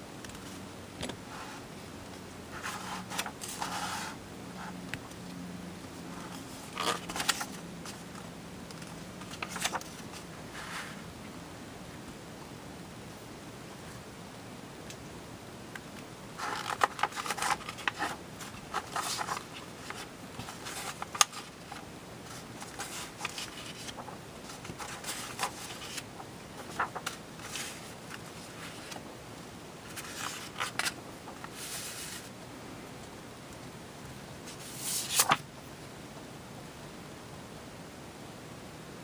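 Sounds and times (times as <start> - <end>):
paper pages rustling: 2.5 - 4.2, 6.1 - 11.0, 16.4 - 29.0, 29.8 - 32.3, 34.5 - 35.4
paper snap: 34.9 - 35.4.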